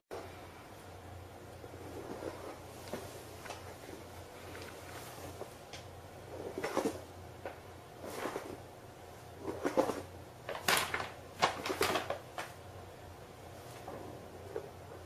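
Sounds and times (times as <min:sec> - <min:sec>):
paper bag rustling: 0:09.6 - 0:12.6.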